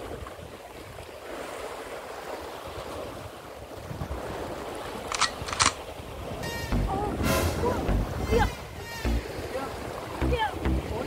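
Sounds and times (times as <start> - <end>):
surf on rocky shore: 0.0 - 11.0
wind on microphone: 2.6 - 11.0.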